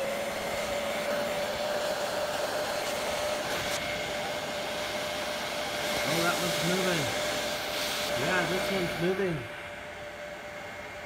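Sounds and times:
heat gun blowing air: 0:00.0 - 0:11.0.

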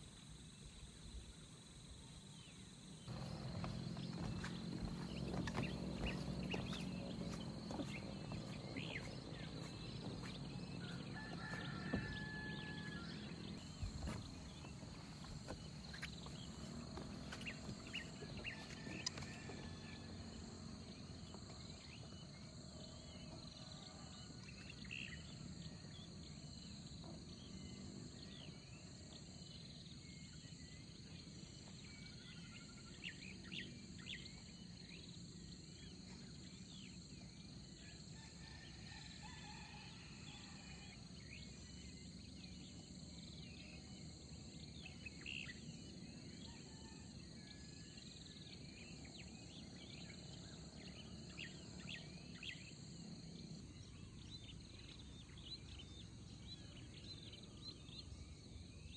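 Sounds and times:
insect drone: 0:00.0 - 0:58.9
bird chirps: 0:03.1 - 0:19.8
footsteps on wooden planks: 0:03.1 - 0:21.8.

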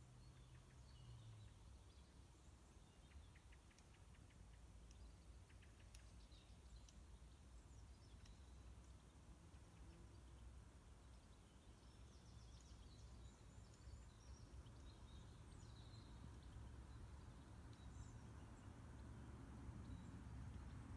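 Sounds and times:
faint high bird chirps: 0:00.0 - 0:20.9.

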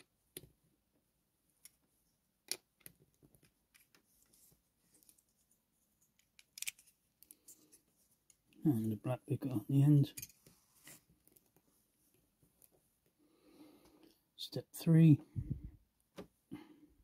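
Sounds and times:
plastic bricks clicking: 0:06.2 - 0:06.9.

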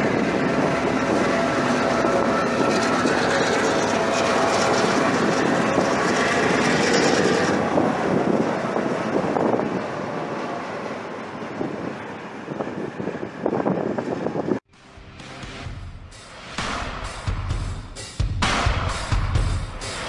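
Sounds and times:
train coaches rolling over rails: 0:00.0 - 0:12.1
diesel locomotive engine: 0:00.0 - 0:17.7.

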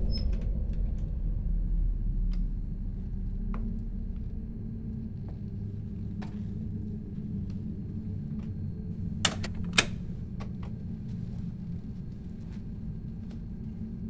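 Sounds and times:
steady low hum: 0:00.0 - 0:14.0
sharp clicks: 0:09.0 - 0:10.2.

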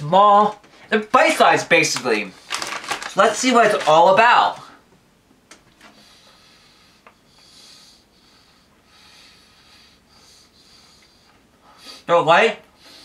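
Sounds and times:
breathing through nose: 0:05.9 - 0:12.1, 0:12.8 - 0:13.0.

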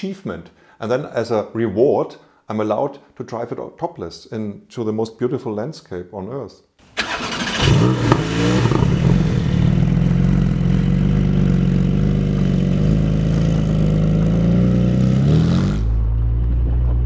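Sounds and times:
car engine running: 0:07.6 - 0:17.0.

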